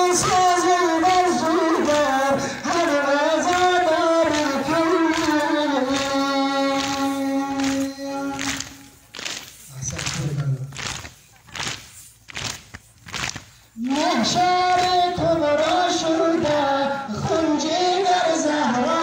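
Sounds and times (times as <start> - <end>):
loud chanting: 0.0 - 9.0, 13.8 - 19.0
people slapping chests: 0.0 - 17.4.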